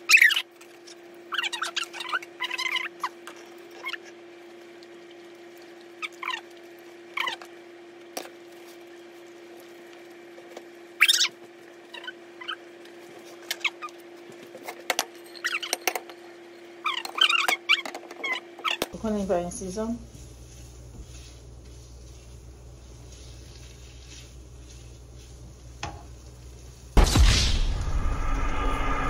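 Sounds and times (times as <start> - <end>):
low hum: 19.0 - 29.0.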